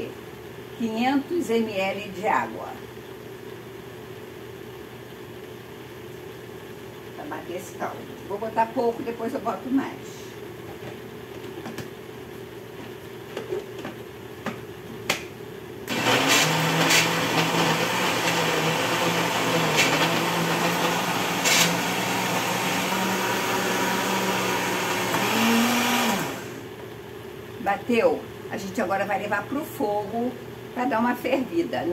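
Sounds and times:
blender motor running: 15.9s - 26.7s.

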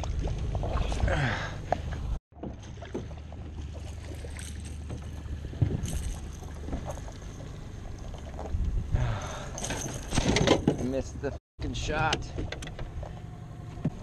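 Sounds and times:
water splashing: 0.0s - 8.5s
low wind rumble on microphone: 5.2s - 10.1s.

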